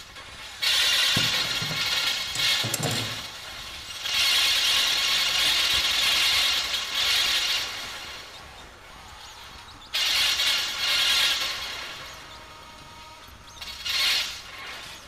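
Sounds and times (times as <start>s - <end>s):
sewing machine clattering: 0.7s - 3.5s.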